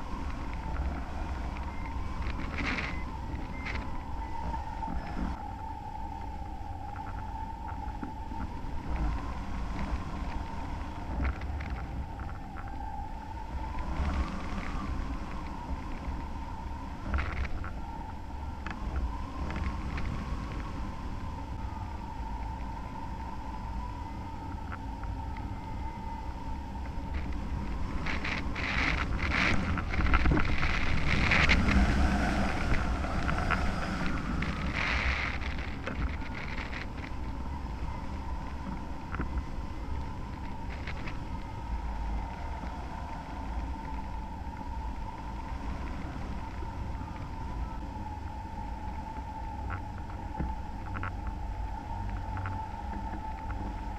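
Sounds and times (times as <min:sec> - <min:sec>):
wind buffeting microphone: 0:00.0 - 0:53.9
small clicks: 0:26.8 - 0:37.8.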